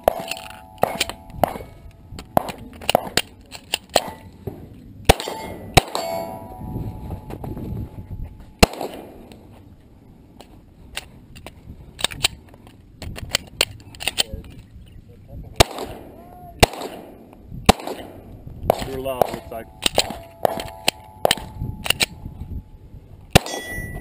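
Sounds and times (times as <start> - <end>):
pistol shots: 0.0 - 1.8, 5.0 - 6.4, 8.6 - 9.3, 15.6 - 22.2, 23.3 - 24.0.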